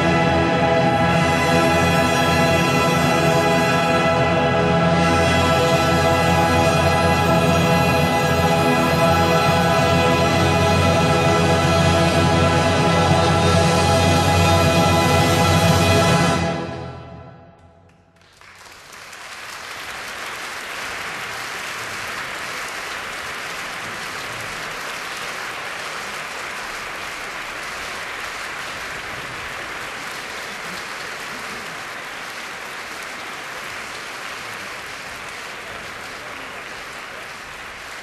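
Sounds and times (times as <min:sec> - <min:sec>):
audience applause: 0:00.0 - 0:13.6, 0:17.9 - 0:38.0
orchestral closing chord: 0:00.0 - 0:17.6.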